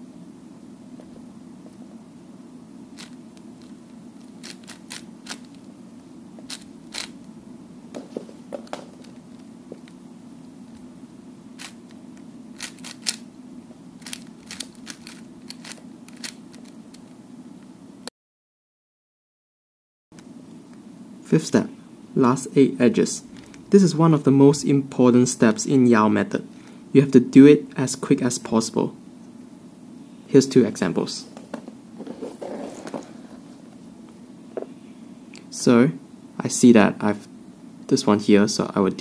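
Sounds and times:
steady low hum: 0.0s - 18.1s, 20.2s - 39.0s
plastic puzzle cube clicking: 12.6s - 13.2s, 14.0s - 16.8s.

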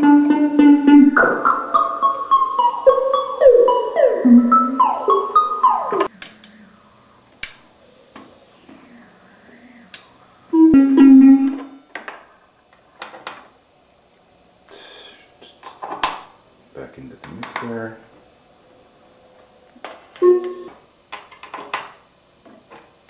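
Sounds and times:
plucked synth notes sweeping down: 0.0s - 6.1s, 10.6s - 11.6s
loud held synth tone: 0.0s - 7.2s, 10.5s - 11.9s, 20.2s - 20.8s.

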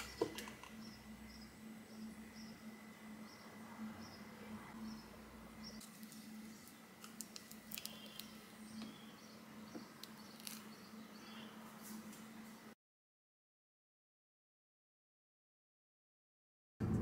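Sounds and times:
low steady hum: 0.0s - 12.8s.

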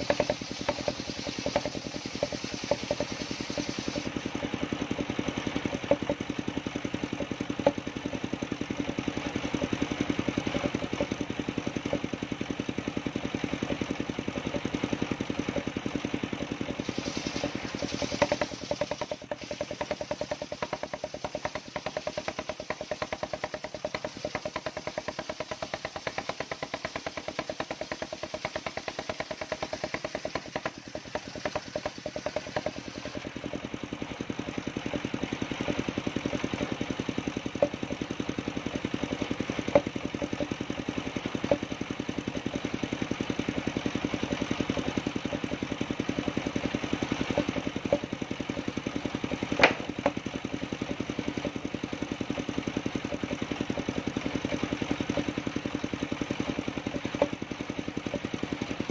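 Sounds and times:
sharp knocks: 0.0s - 4.1s, 5.7s - 6.2s, 17.2s - 33.6s, 49.5s - 50.2s
sawmill engine pulse: 0.0s - 58.9s.

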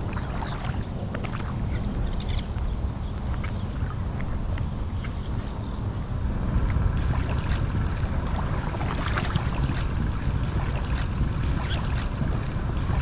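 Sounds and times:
water lapping: 0.0s - 2.0s, 7.0s - 13.0s
wind rumble on microphone: 0.0s - 13.0s
paddle splashing: 7.0s - 13.0s.

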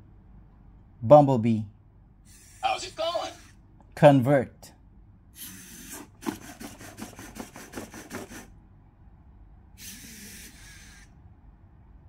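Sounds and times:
short hiss: 2.3s - 3.6s, 5.4s - 8.5s, 9.8s - 11.1s.

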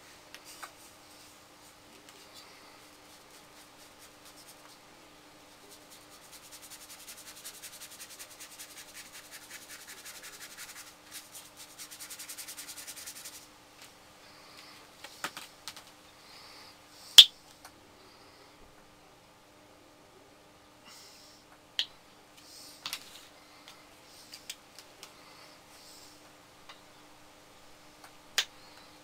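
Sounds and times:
paintbrush scrubbing on paper: 1.1s - 4.8s, 5.6s - 13.5s.

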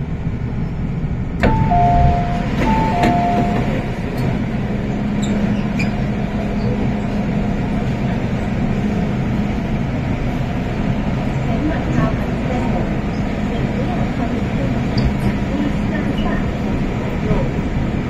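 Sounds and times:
train equipment hum: 0.0s - 18.0s
two-note door chime: 1.4s - 3.7s
train door release click: 1.4s - 4.4s.

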